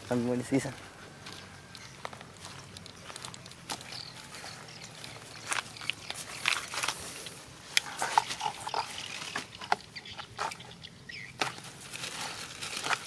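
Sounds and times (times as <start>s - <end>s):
plastic bag rustling: 11.4s - 13.0s.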